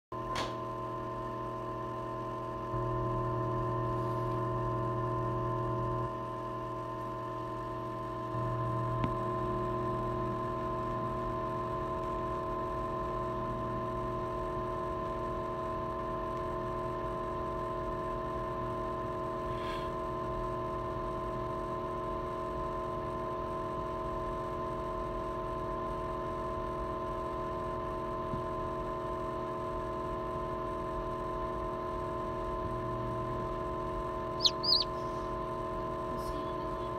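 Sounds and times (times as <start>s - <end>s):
incubator fan hum: 0.2s - 36.9s
chick peeping: 34.4s - 35.0s.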